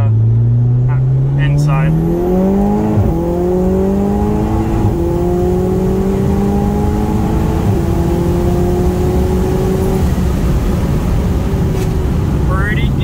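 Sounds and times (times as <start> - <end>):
car engine accelerating: 0.0 - 13.0.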